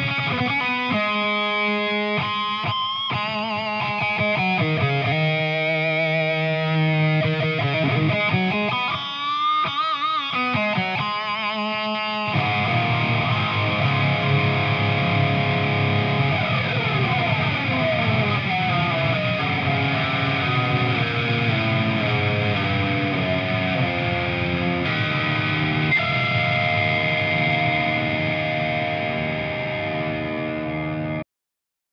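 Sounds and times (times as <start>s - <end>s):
overdriven electric guitar: 0.0s - 31.2s.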